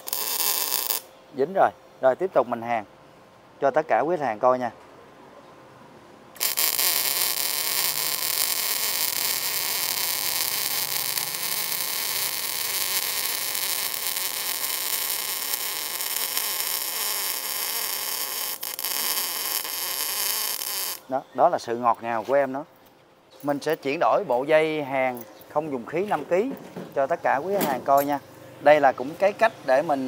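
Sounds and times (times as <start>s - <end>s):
welding arc hissing: 0.0s - 1.1s, 6.4s - 21.1s.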